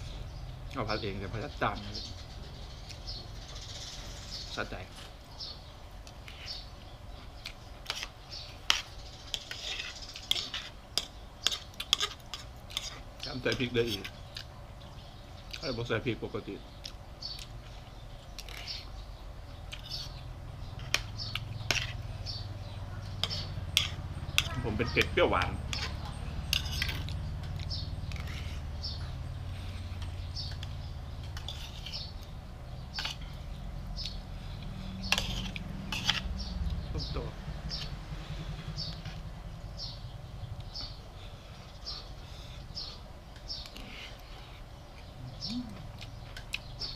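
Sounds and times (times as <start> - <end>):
steady low hum: 0.0 - 46.9
cutlery scraping on plate: 8.7 - 14.1, 23.1 - 24.6, 25.7 - 27.2, 31.2 - 32.1, 32.9 - 33.3, 35.0 - 36.3
chewing: 13.9 - 14.6, 16.8 - 18.9, 19.6 - 20.2, 25.7 - 36.8, 43.3 - 46.9.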